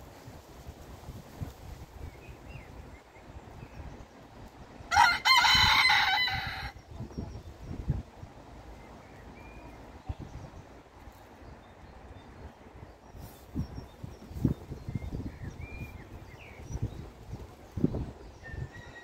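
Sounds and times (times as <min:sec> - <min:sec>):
rooster crowing: 0:04.9 - 0:06.8, 0:18.5 - 0:19.0.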